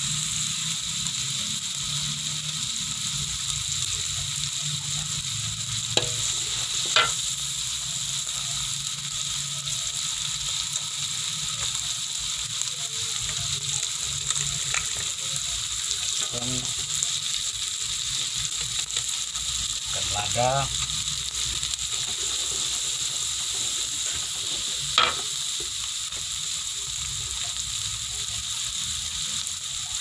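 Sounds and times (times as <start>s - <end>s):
onion sizzling in hot oil: 0.0s - 30.0s
metal spatula scraping pan: 6.0s - 7.3s.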